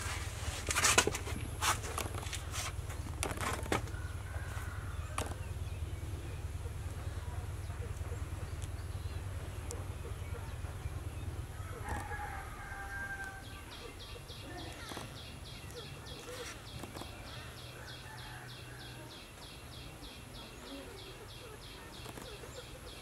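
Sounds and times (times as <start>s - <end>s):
steady low rumble: 0.0s - 17.8s
rooster crowing: 3.9s - 5.2s, 11.5s - 13.7s, 17.3s - 19.2s.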